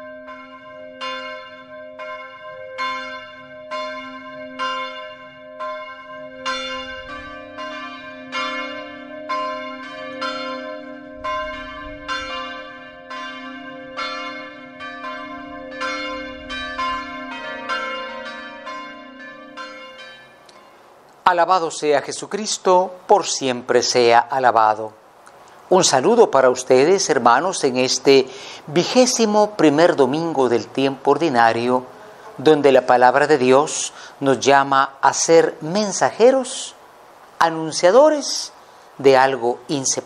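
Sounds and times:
bells pealing: 0:00.0 - 0:20.9.

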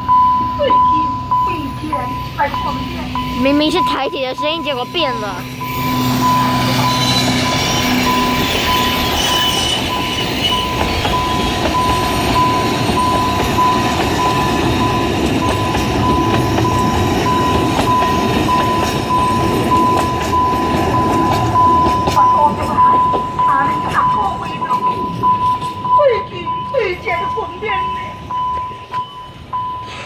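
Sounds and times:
crossing alarm beeping: 0:00.0 - 0:30.0
locomotive engine hum: 0:00.0 - 0:30.0
train coaches rumbling: 0:00.0 - 0:30.0
train wheel clicks: 0:06.8 - 0:26.0.

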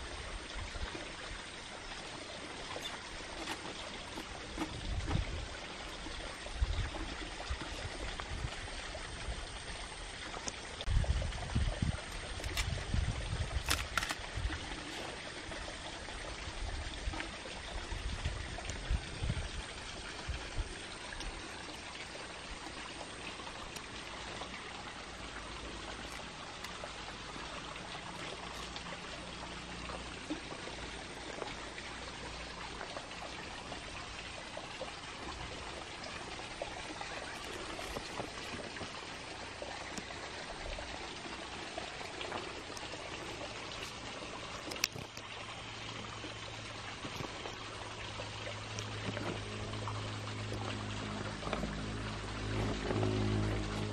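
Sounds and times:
running water: 0:00.0 - 0:53.9
small clicks: 0:12.1 - 0:12.7, 0:13.6 - 0:14.3, 0:44.6 - 0:45.3
low hum: 0:46.2 - 0:53.9.

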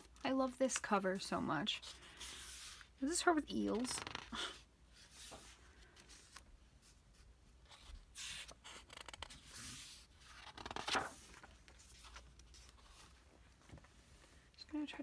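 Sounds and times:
book pages turning: 0:03.6 - 0:13.9.

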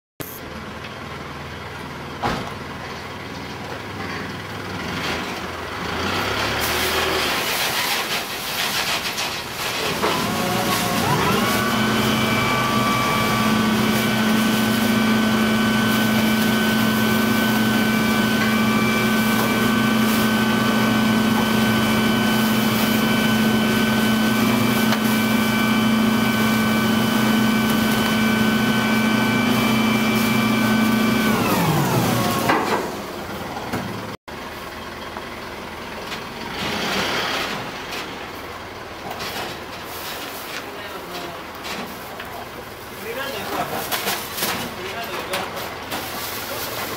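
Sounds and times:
garbage truck engine idling: 0:00.4 - 0:36.9, 0:37.6 - 0:46.9
packer mechanical whine: 0:06.6 - 0:34.2.

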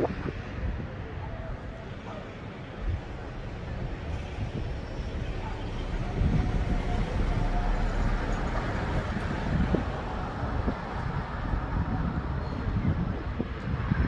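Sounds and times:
road traffic: 0:00.0 - 0:14.0
wind buffeting microphone: 0:00.0 - 0:14.0.

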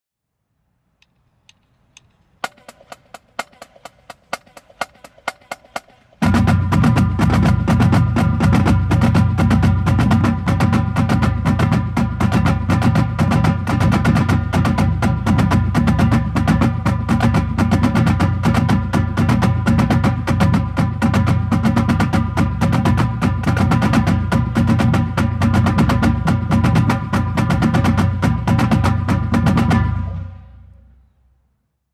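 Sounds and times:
rapid drum taps: 0:02.4 - 0:29.8
drumline playing: 0:02.4 - 0:30.6.

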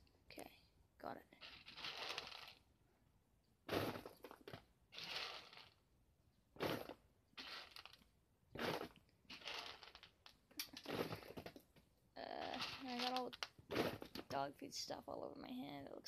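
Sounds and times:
dog kibble rattling in plastic bowl: 0:01.4 - 0:02.5, 0:08.6 - 0:11.2, 0:12.5 - 0:14.2.

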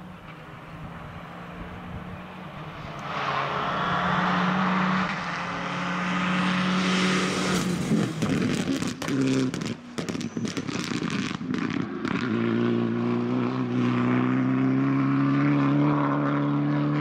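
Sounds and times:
rally car engine revving: 0:00.2 - 0:17.0
exhaust crackles: 0:07.2 - 0:12.3.

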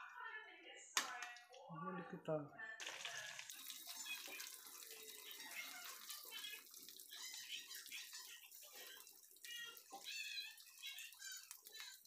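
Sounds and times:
meat sizzling in a pan: 0:02.8 - 0:12.0.

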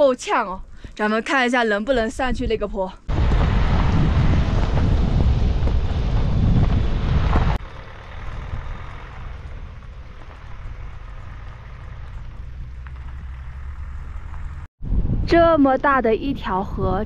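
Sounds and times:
van engine humming: 0:03.1 - 0:14.7
van rumbling on rough road: 0:03.1 - 0:14.7.

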